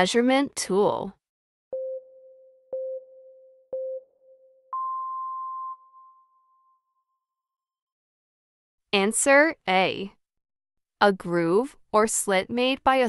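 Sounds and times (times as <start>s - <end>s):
long high timer beep: 1.7s - 6.7s
short low timer beeps: 1.8s - 6.2s.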